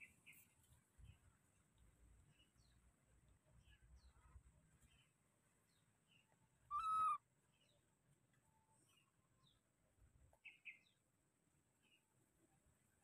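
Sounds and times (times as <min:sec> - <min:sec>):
faint bird chirps: 0:00.0 - 0:09.7, 0:10.4 - 0:11.0
baby monkey call: 0:06.7 - 0:07.2.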